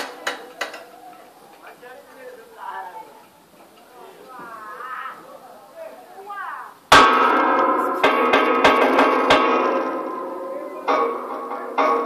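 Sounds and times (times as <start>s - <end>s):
faint voices: 0.0s - 6.9s
metal clanging with ringing tone: 6.9s - 12.0s.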